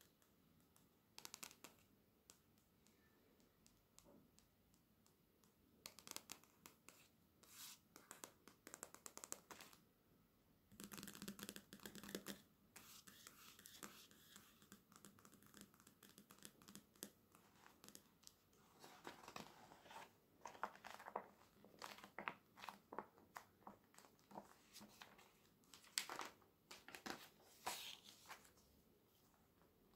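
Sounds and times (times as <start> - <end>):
pages rustling: 17.4 - 28.7.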